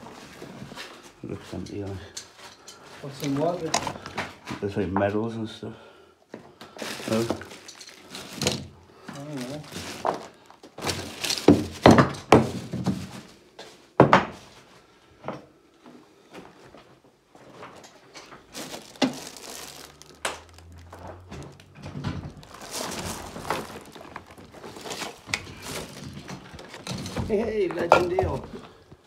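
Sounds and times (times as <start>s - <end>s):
crinkling: 6.6s - 12.0s, 16.6s - 29.0s
objects knocking and thudding: 6.8s - 13.4s, 14.0s - 14.6s, 17.4s - 29.0s.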